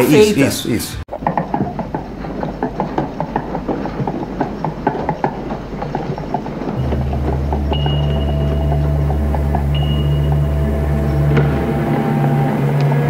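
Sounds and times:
plastic wheels rattling on floor: 1.1s - 10.0s
low steady hum: 2.0s - 13.0s.

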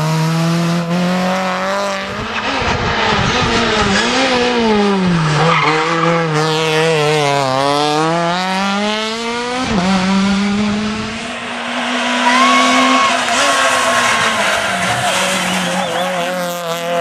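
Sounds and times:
rally car engine revving: 0.0s - 17.0s
tyres squealing: 12.0s - 16.2s.

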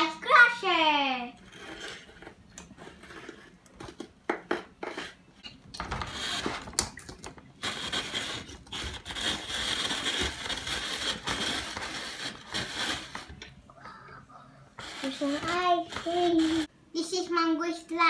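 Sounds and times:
ice crusher grinding ice: 0.2s - 4.0s, 7.6s - 13.4s, 14.8s - 16.7s.

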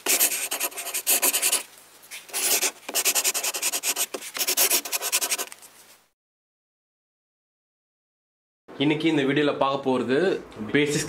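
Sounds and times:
brush rubbing on paper: 0.0s - 6.0s.

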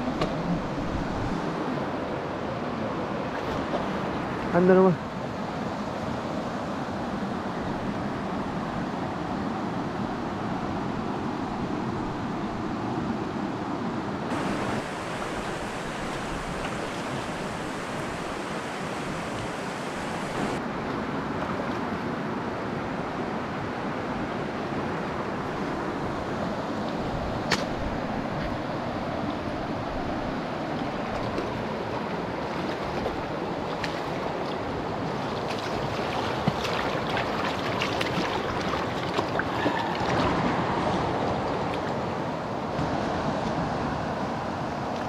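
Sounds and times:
river water rushing over stones: 14.3s - 22.0s, 23.8s - 45.0s
sharp click: 27.5s - 27.7s.

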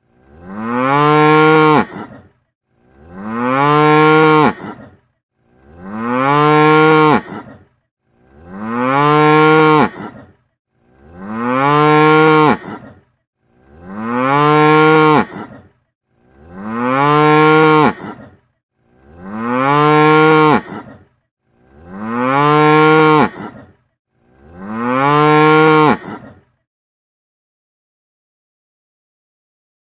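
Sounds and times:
cow mooing: 0.2s - 2.3s, 2.9s - 5.0s, 5.6s - 7.6s, 8.3s - 10.3s, 11.0s - 13.0s, 13.6s - 15.7s, 16.3s - 18.4s, 19.0s - 21.0s, 21.7s - 23.7s, 24.4s - 26.5s.

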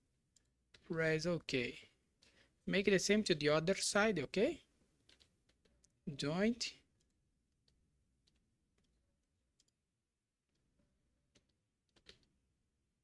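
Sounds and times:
computer mouse clicks: 7.0s - 9.9s, 11.3s - 12.4s.

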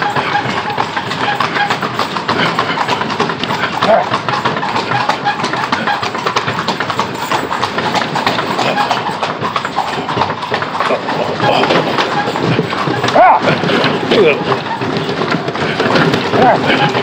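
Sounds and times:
carriage rattling and knocking: 0.0s - 17.0s
horse hooves clip-clopping on stone: 0.0s - 17.0s.

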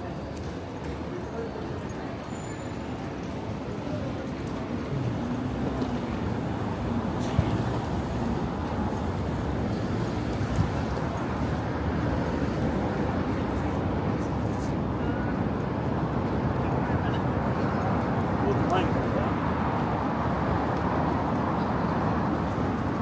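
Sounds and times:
road traffic passing: 0.0s - 23.0s.

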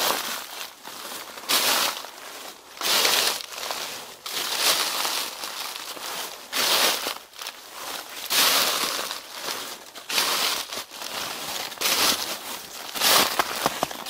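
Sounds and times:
footsteps crunching through leaves: 0.0s - 14.0s
leaves shuffling: 0.0s - 14.0s.

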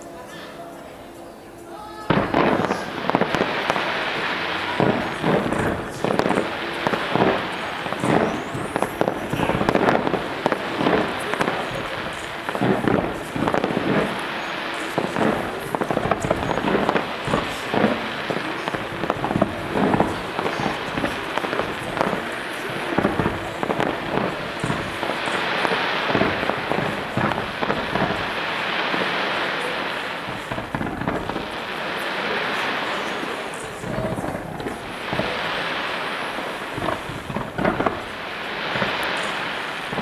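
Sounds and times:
fireworks crackle: 1.8s - 40.0s
fireworks bangs and pops: 2.1s - 40.0s.

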